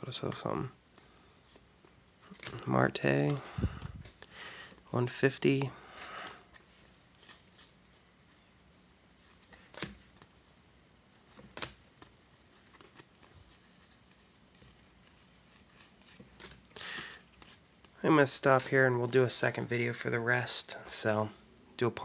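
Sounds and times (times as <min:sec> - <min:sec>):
cards flipped by hand: 0:01.5 - 0:02.6, 0:06.4 - 0:08.0, 0:09.2 - 0:10.4, 0:11.3 - 0:18.0.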